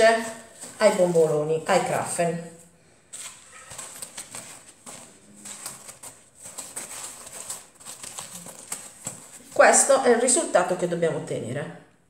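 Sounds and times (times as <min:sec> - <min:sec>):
gritty sugar rustling: 0:00.0 - 0:10.6.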